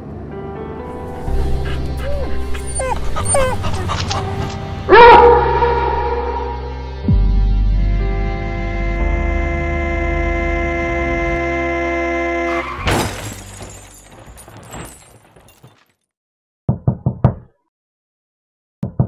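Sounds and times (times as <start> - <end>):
car horn: 7.8 - 12.9
crash and breaking glass: 12.5 - 16.0.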